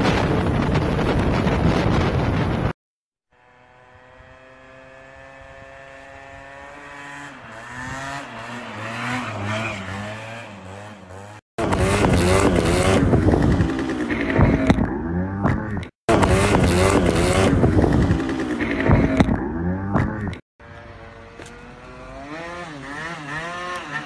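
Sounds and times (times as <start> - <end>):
scooter engine buzzing: 3.2 - 24.0
scooter revving hard: 3.3 - 24.0.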